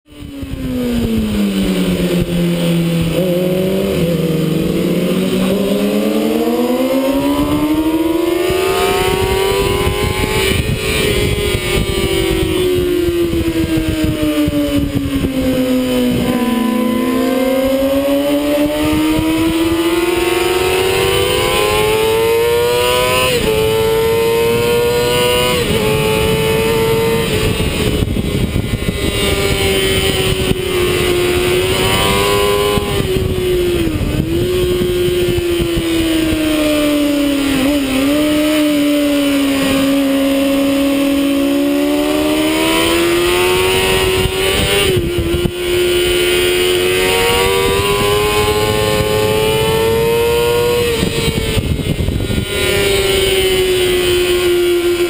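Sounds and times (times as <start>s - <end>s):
motorcycle engine revving: 0.0s - 55.0s
wind rush: 0.1s - 55.0s.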